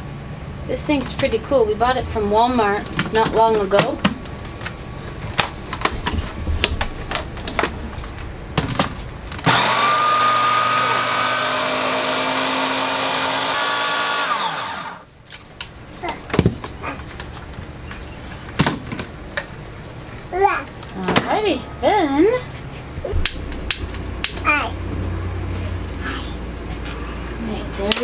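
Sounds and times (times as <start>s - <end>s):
food processor motor whining: 9.4s - 15.1s.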